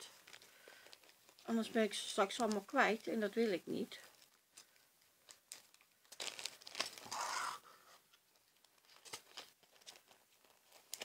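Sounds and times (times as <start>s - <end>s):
plastic sleeve crinkling: 0.0s - 11.0s.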